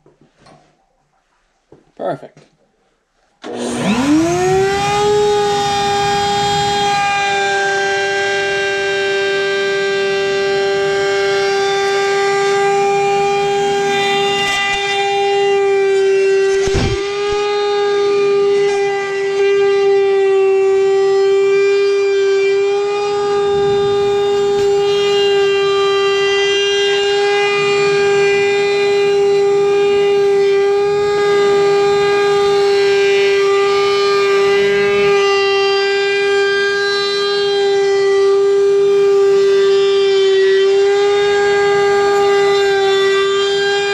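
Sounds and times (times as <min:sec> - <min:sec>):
wood router high whine: 0:03.4 - 0:43.9
sharp knock: 0:16.6 - 0:17.4.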